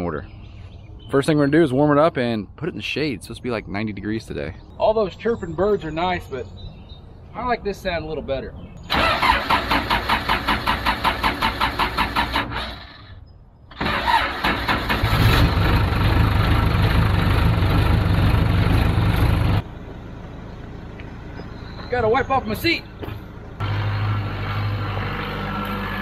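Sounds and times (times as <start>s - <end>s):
starter motor cranking: 8.9s - 13.0s
diesel engine running: 13.8s - 26.0s.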